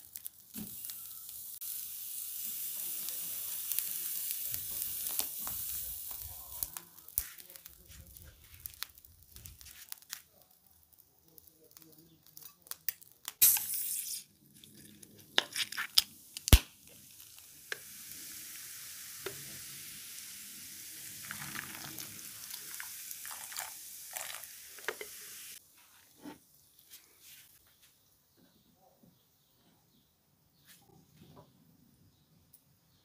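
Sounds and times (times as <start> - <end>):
beer fizzing hiss: 0.0 - 10.0, 13.3 - 14.4, 15.7 - 25.6
short loud hiss: 13.4 - 14.3.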